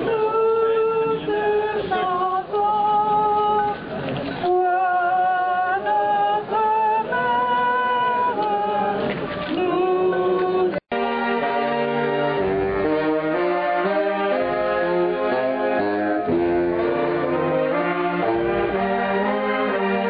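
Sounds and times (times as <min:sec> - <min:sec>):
voices singing a hymn: 0:04.5 - 0:12.4.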